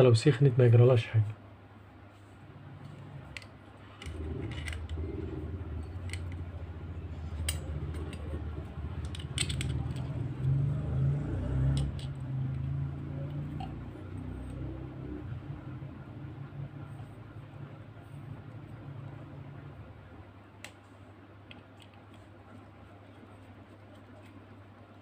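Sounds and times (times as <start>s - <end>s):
steady low rumble: 1.7s - 21.4s.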